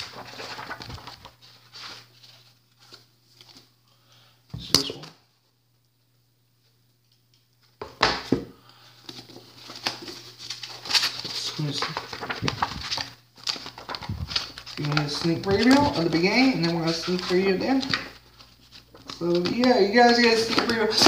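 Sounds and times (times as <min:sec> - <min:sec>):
book pages rustling: 0:00.0 - 0:03.7, 0:09.0 - 0:21.0
book handling noise: 0:00.0 - 0:05.2, 0:07.6 - 0:21.0.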